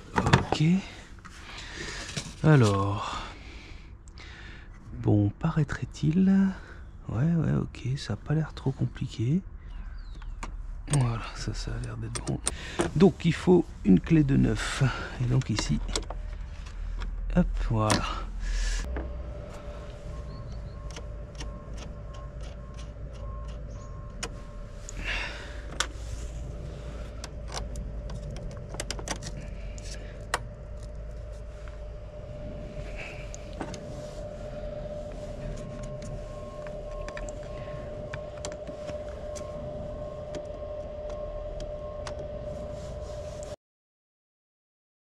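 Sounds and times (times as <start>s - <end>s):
steady electronic tone: 17.4s - 43.6s.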